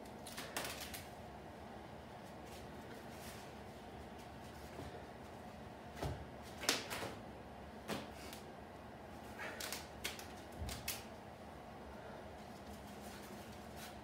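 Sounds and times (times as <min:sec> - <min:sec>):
wraps rustling and clicking: 0:00.0 - 0:01.1.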